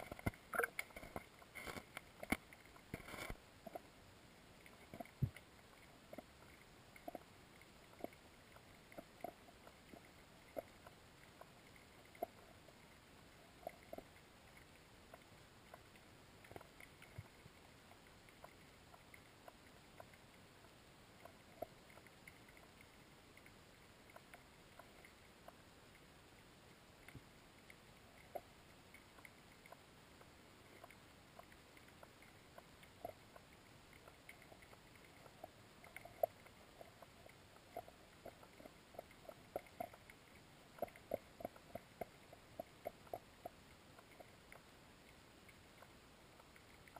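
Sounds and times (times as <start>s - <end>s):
underwater clicks and knocks: 0.0s - 3.9s.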